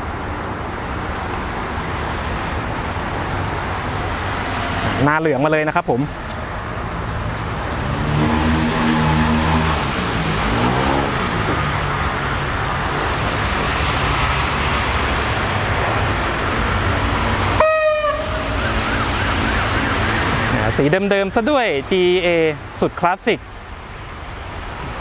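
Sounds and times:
wheels rumbling over rails: 0.0 - 20.9
short train horn toot: 17.6 - 18.6.

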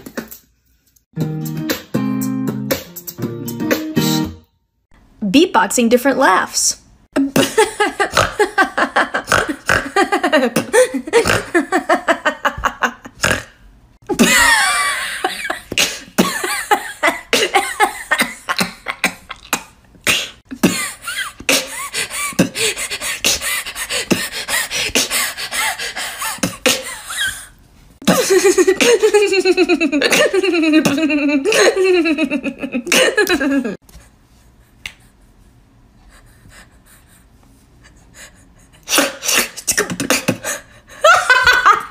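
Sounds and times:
woman beatboxing laughs: 7.2 - 13.5, 26.2 - 33.8, 39.5 - 41.9.

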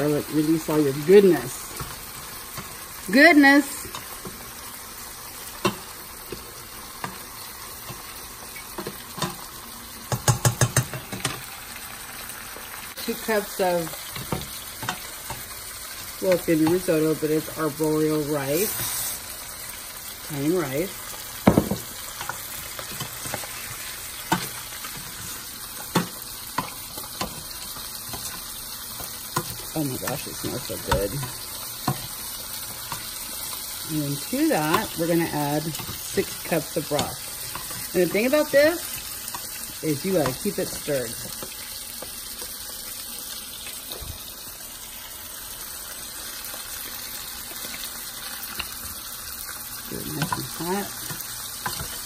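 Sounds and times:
rice sizzling in oil: 0.0 - 52.0.

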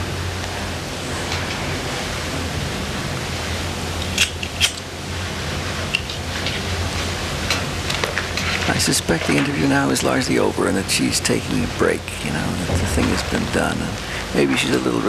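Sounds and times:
videotape hiss and hum: 0.0 - 15.0.

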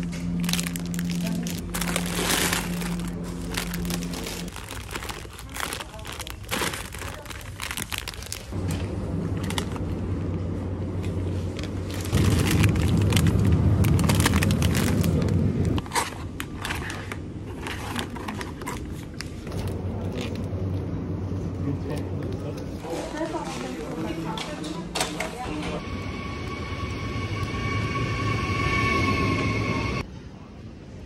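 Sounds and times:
low steady hum: 0.0 - 22.9
plastic packaging crinkling: 0.3 - 8.6, 11.5 - 20.3.

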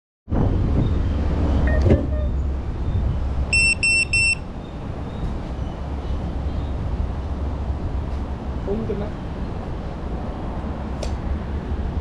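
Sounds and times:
short electronic beeps: 3.5 - 4.5.

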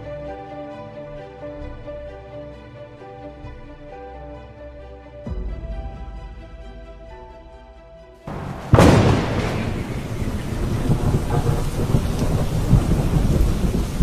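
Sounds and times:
soft background music: 0.0 - 14.0
heavy rain: 8.3 - 14.0
low thunder rumble: 8.3 - 14.0
thunderclap: 8.3 - 14.0.

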